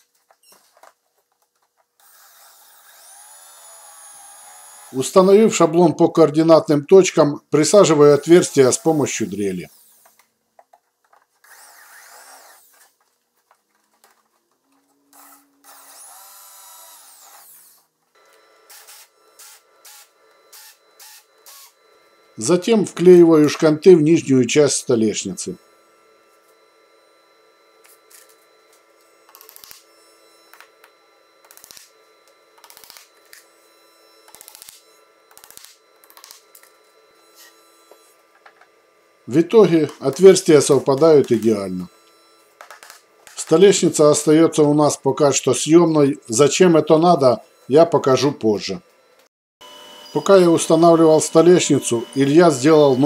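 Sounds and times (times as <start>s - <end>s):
electric drill boring: 2.0s - 5.5s, 7.7s - 10.3s, 11.4s - 13.0s, 15.0s - 23.9s, 24.7s - 44.4s, 49.0s - 53.0s.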